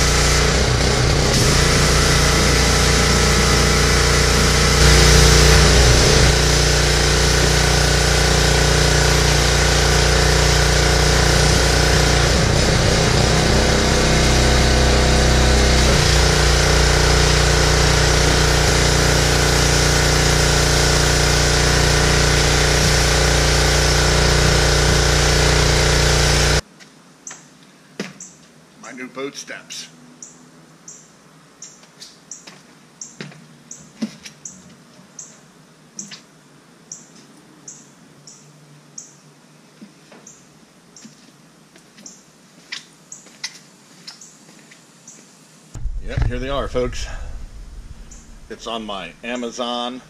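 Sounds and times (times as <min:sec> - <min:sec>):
pressure washer engine running: 0:00.0 - 0:26.6, 0:45.8 - 0:50.0.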